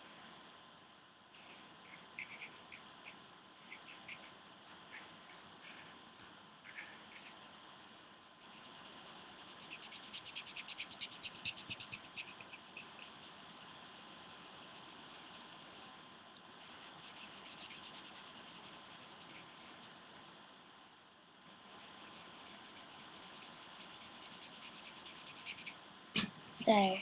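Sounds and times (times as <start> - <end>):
pen scribbling on paper: 8.4 - 15.9, 16.6 - 19.9, 21.6 - 25.7.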